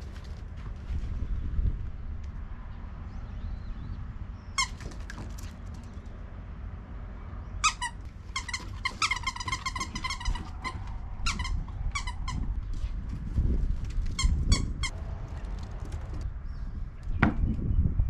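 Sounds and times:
wind rumble on microphone: 0:00.0 - 0:07.2, 0:09.7 - 0:18.0
squeaky toy squeaking: 0:04.6 - 0:04.9, 0:07.6 - 0:12.5, 0:14.1 - 0:14.9.

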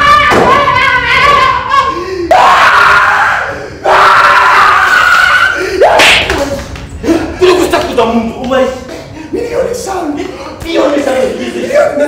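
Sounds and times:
person screaming: 0:00.0 - 0:06.2.

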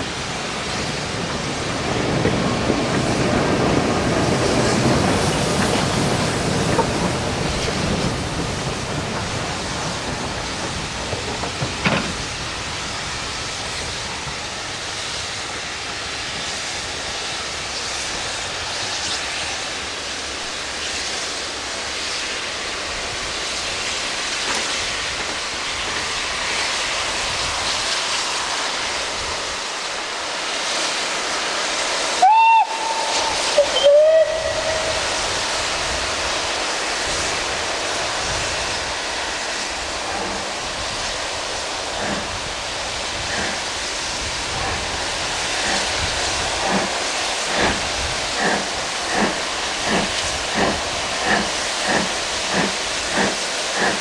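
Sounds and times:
steady rushing noise: 0:00.0 - 0:54.0
steam locomotive whistle blasts: 0:32.2 - 0:35.2.

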